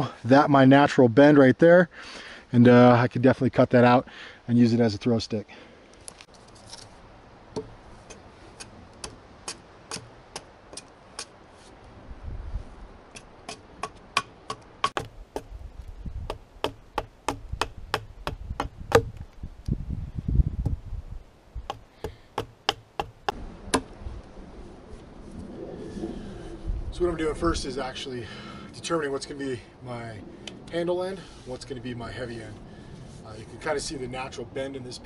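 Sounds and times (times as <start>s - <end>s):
axe chopping wood: 13.2s - 15.5s, 16.3s - 19.2s, 21.7s - 23.9s.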